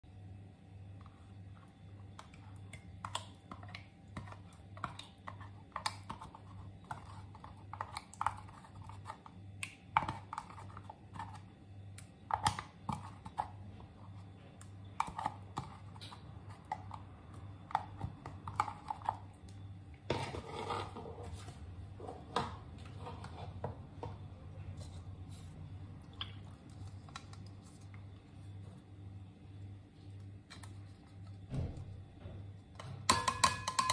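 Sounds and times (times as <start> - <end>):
low steady hum: 0.0 - 33.9
rustling scrape: 20.1 - 22.3
plastic cups tapping glass bowl: 33.0 - 33.9.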